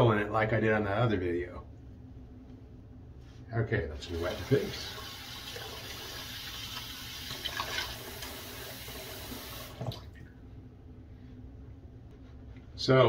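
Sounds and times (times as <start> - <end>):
tap water running into sink: 4.1 - 10.2.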